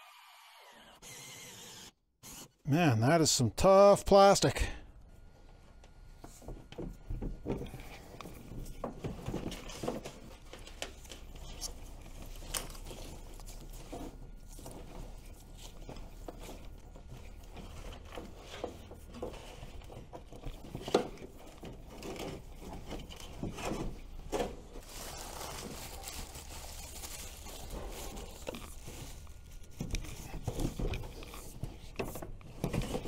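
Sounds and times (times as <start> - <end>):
cables scraping and rustling: 7.5 - 33.0.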